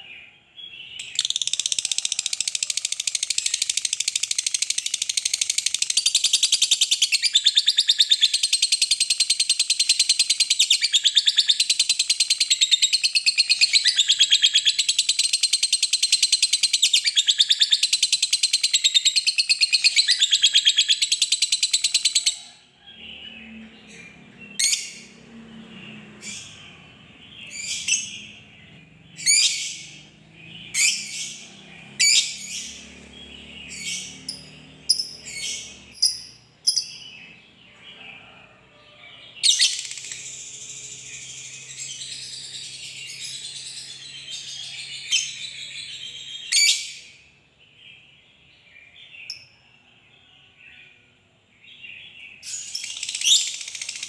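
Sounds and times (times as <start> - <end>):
sharp bird chirps: 0.8 - 22.5, 25.9 - 37.4, 52.3 - 54.0.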